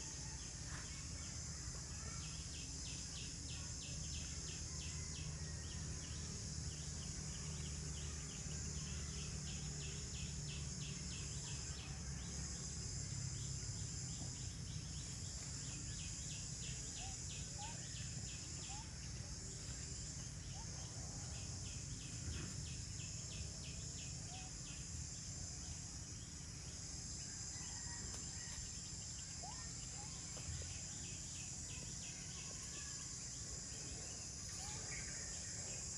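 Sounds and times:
faint bird chirps: 0.0 - 5.6, 15.7 - 19.1, 27.6 - 35.9
insects droning: 0.0 - 35.9.

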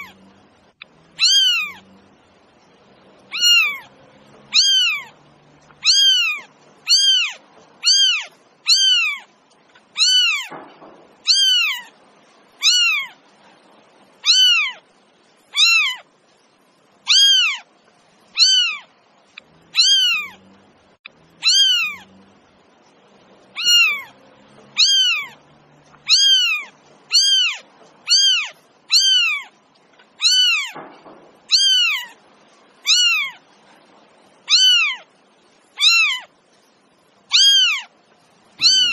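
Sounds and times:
cat meowing: 0.0 - 0.3, 1.1 - 2.0, 3.3 - 9.3, 9.9 - 10.6, 11.2 - 12.0, 12.6 - 13.2, 14.2 - 14.8, 15.5 - 16.1, 17.1 - 17.7, 18.3 - 18.9, 19.7 - 20.4, 21.4 - 22.2, 23.5 - 25.4, 26.0 - 29.6, 30.2 - 30.8, 31.5 - 32.2, 32.8 - 33.4, 34.4 - 35.1, 35.8 - 36.3, 37.3 - 37.9, 38.6 - 38.9.

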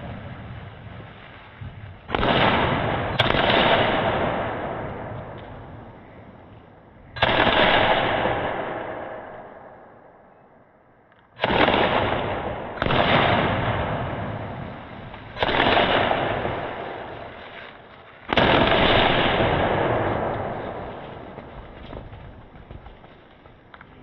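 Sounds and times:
slowed firework booms: 0.0 - 6.5, 11.4 - 24.0.

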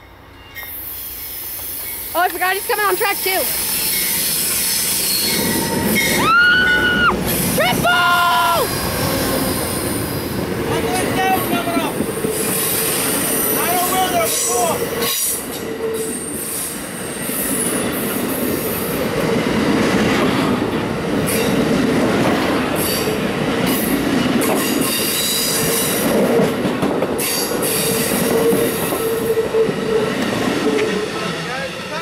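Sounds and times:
train wheels rolling on rail: 0.0 - 32.0
wheel squeals: 3.4 - 7.1.

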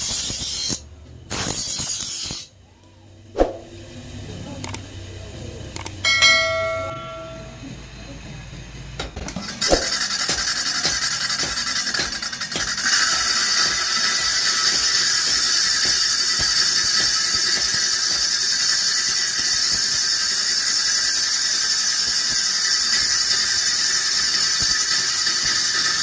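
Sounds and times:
blade grinding on wheel: 9.4 - 26.0.

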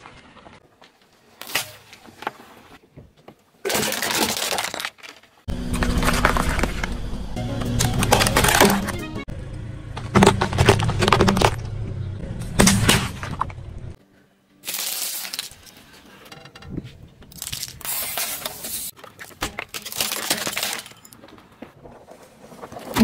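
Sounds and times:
car tyre crushing objects: 0.0 - 14.0, 17.2 - 23.0.

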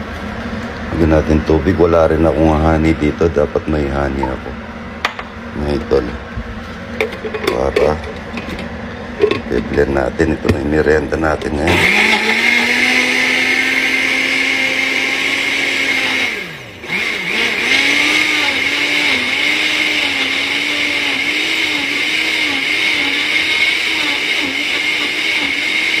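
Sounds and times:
blender motor running: 11.6 - 26.0.

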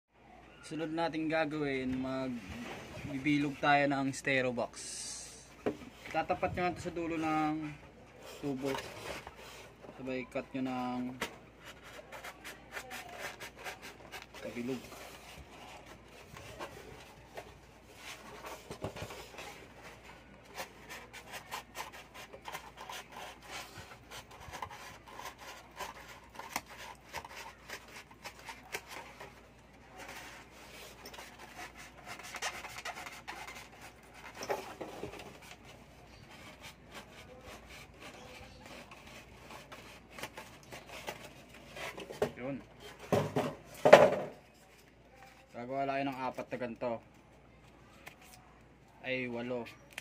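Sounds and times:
blade scraping through foam: 8.2 - 17.0, 20.5 - 29.3.

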